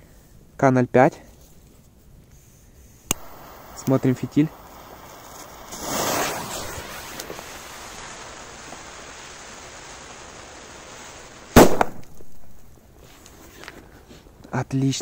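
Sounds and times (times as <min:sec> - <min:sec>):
fuse hissing: 0:03.1 - 0:11.6
firecracker bang: 0:03.1 - 0:12.7.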